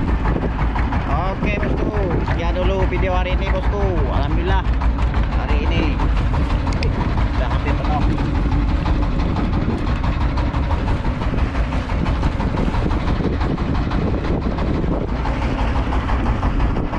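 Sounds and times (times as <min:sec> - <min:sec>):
boat engine rumbling: 0:00.0 - 0:16.9.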